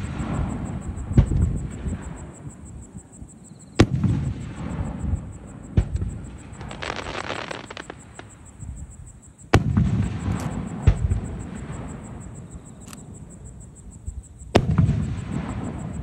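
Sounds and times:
crackling fizz of stars: 6.6s - 8.4s
firework shells bursting: 6.6s - 8.4s.

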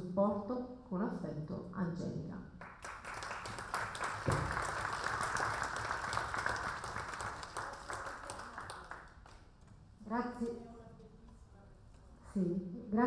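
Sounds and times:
audience applause: 2.6s - 9.4s.

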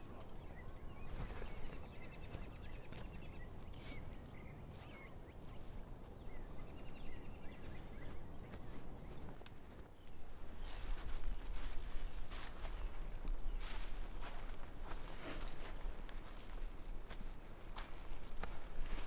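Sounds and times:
small birds chirping: 0.0s - 19.0s
rustle of dry brush: 13.6s - 16.4s.

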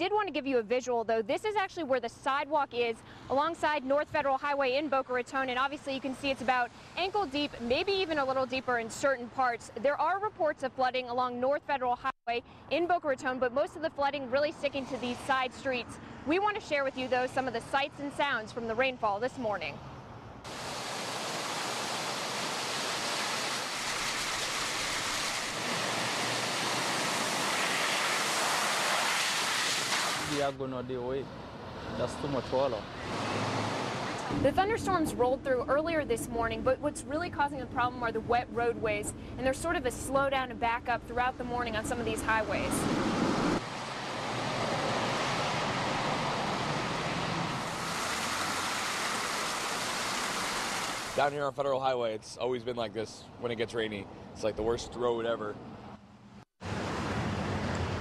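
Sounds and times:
heavy rain on a road: 20.5s - 30.4s, 47.6s - 51.2s
van ploughing through floodwater: 20.5s - 30.7s, 43.6s - 51.3s.

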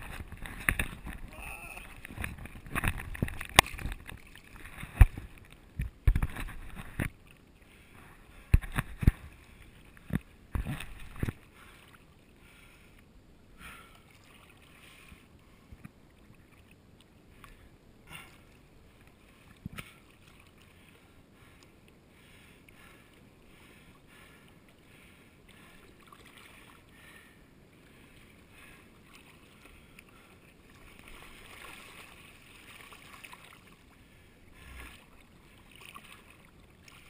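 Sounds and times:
hands paddling and splashing water: 0.0s - 7.4s, 8.4s - 12.2s, 27.9s - 34.0s, 34.8s - 37.0s.

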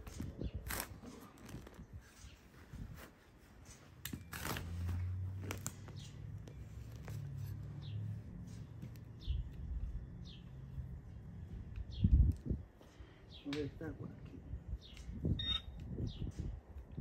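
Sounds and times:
bird chirps: 14.8s - 16.4s.

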